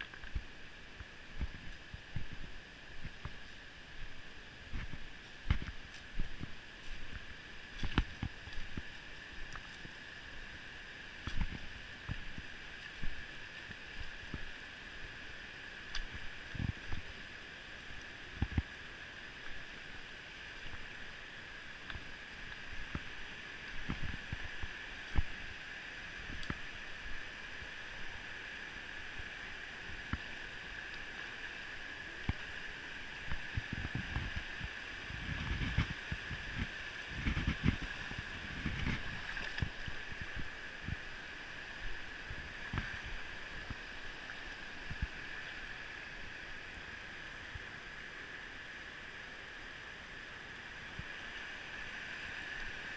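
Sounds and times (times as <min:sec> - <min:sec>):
river water rushing over rocks: 0:00.0 - 0:52.9
microphone bumps and rumbles: 0:01.4 - 0:03.4, 0:04.7 - 0:07.2, 0:23.8 - 0:24.5, 0:33.3 - 0:41.0.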